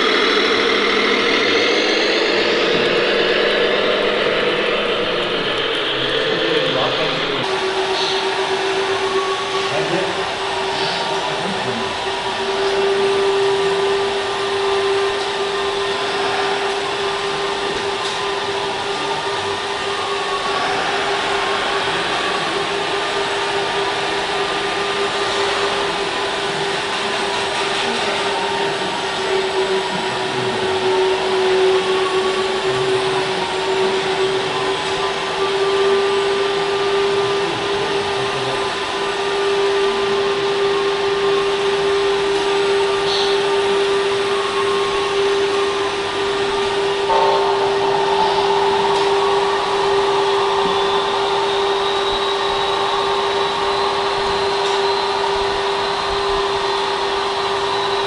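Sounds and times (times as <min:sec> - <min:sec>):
hydraulic pump whining: 0:00.0 - 0:58.0
wavering high tone: 0:46.8 - 0:55.3.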